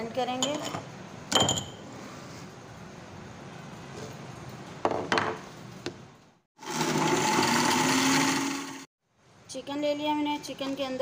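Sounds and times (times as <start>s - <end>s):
electric blender whirring: 6.6s - 8.9s.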